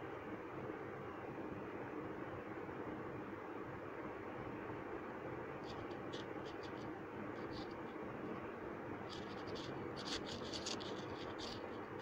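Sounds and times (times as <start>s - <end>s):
steady low hiss: 0.0s - 12.0s
pen scratching touchscreen: 5.6s - 8.0s, 9.1s - 12.0s.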